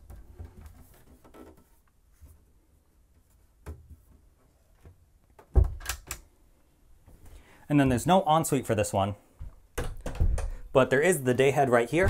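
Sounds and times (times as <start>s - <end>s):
closet door shutting with thump: 5.5s - 6.0s, 9.8s - 10.6s.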